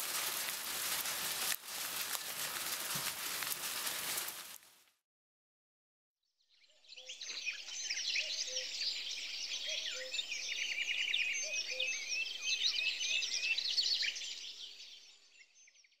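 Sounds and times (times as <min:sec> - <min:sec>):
songbirds chirping and singing: 0:06.6 - 0:16.0.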